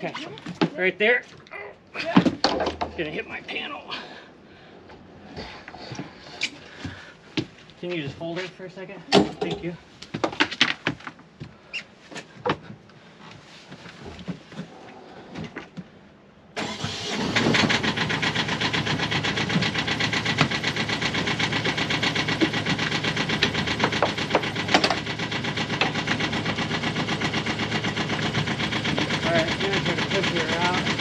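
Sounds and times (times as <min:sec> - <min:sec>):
boat engine running: 0:17.8 - 0:31.0.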